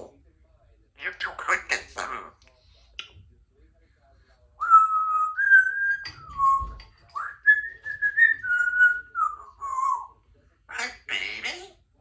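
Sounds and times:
parrot whistling a tune: 0:04.6 - 0:10.1.

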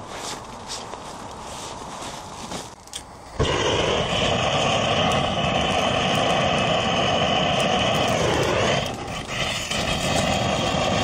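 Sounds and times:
butane torch flame hissing: 0:03.4 - 0:11.0.

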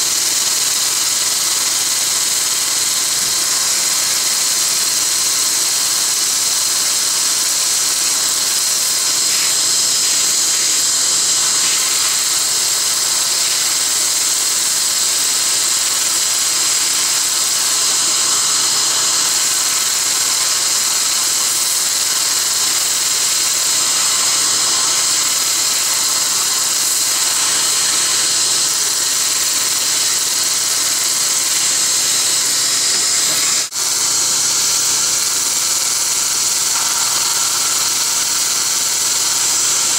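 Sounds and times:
dental laser spray hissing: 0:00.0 - 0:39.9.

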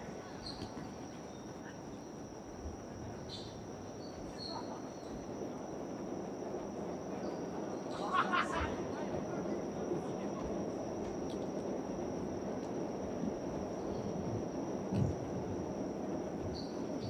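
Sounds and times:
high-pitched insect-like trill: 0:15.8 - 0:17.0.

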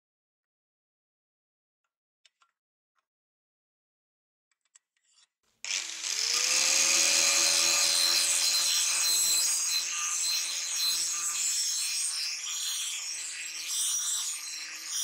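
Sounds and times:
angle grinder grinding steel: 0:05.7 - 0:15.0.

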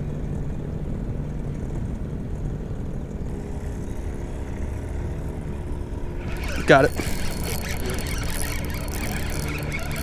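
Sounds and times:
motorboat engine rumbling: 0:00.1 - 0:10.0
higher hum: 0:05.6 - 0:10.0.

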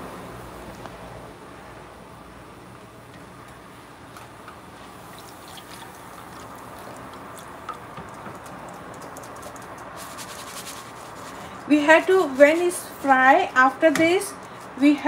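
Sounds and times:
food sizzling in hot oil: 0:05.0 - 0:07.0.

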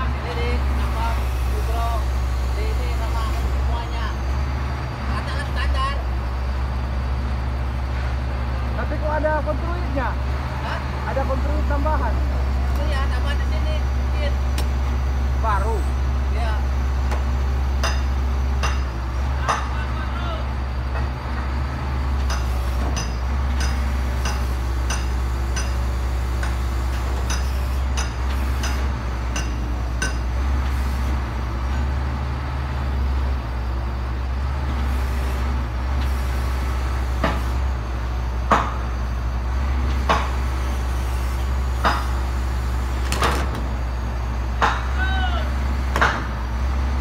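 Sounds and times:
diesel engine idling: 0:00.0 - 0:47.0.

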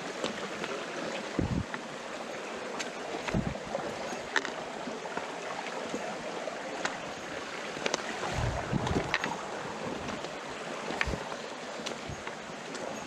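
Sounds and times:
stream trickling over stones: 0:00.0 - 0:13.0
footsteps on rocks: 0:07.8 - 0:12.9.

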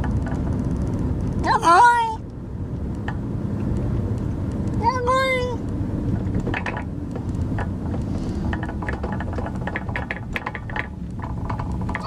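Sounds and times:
clicking and rattling: 0:00.0 - 0:01.4, 0:05.6 - 0:12.0
car rumbling in motion: 0:00.0 - 0:12.0.

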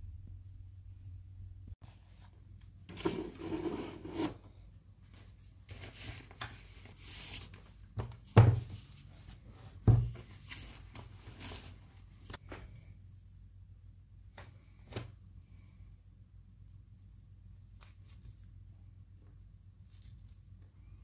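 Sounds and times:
rustling and handling noises: 0:01.8 - 0:13.4, 0:16.6 - 0:21.0.

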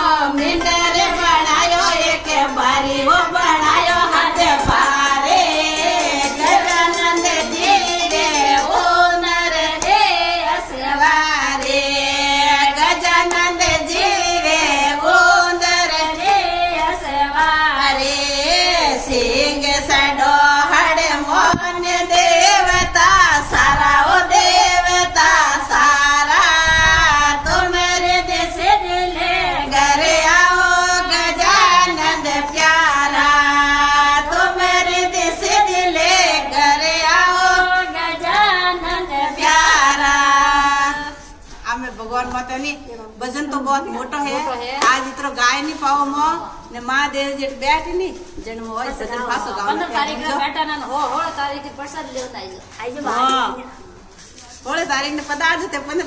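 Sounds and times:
women singing devotional song: 0:00.0 - 0:56.0
hand claps: 0:12.9 - 0:13.5, 0:44.8 - 0:45.1.

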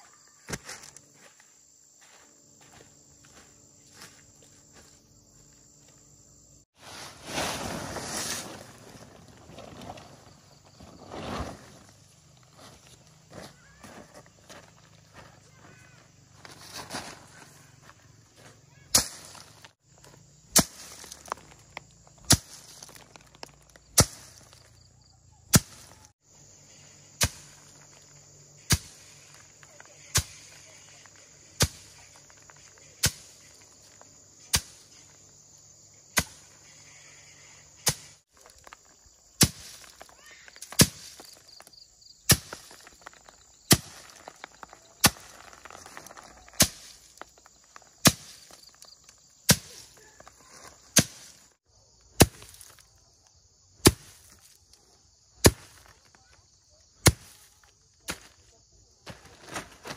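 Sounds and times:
sharp chopping or hammering blows: 0:25.5 - 0:26.0, 0:37.8 - 0:38.2, 0:57.0 - 0:57.4.

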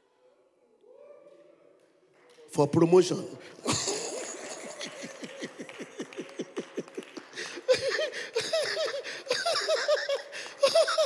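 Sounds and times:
people laughing: 0:03.5 - 0:11.0.

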